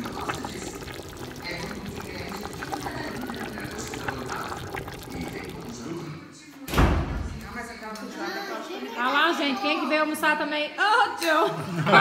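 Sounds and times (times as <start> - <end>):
stew bubbling and sloshing: 0.0 - 6.2
background voices talking: 0.0 - 6.3.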